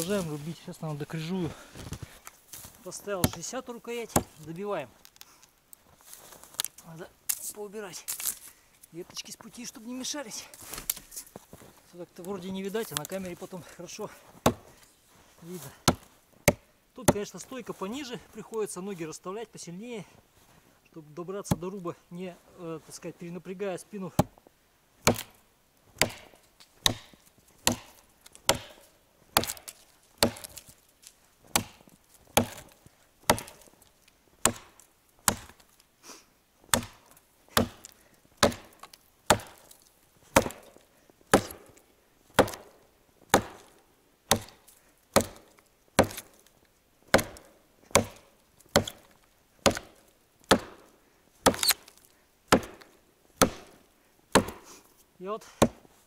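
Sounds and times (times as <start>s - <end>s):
axe chopping into log: 4.1s - 4.4s, 14.4s - 14.7s, 15.8s - 17.3s, 25.0s - 25.4s, 26.0s - 30.7s, 31.5s - 33.7s, 34.4s - 35.6s, 36.7s - 44.6s, 45.2s - 46.5s, 47.1s - 54.7s, 55.6s - 55.9s.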